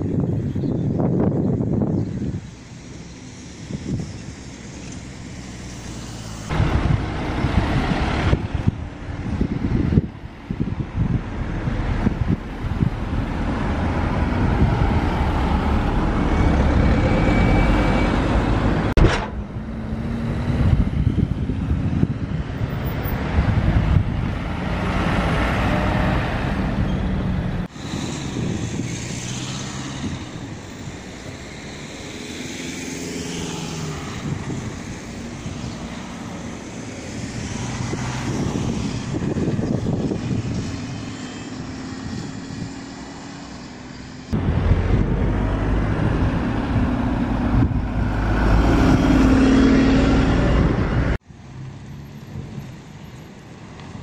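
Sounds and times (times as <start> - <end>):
road traffic passing: 0.0 - 54.0
heavy low rumble: 44.4 - 48.1.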